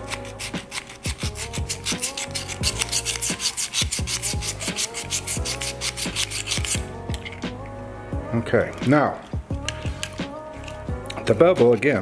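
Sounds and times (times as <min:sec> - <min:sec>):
sharpener rubbing on steel blade: 0:00.0 - 0:07.5.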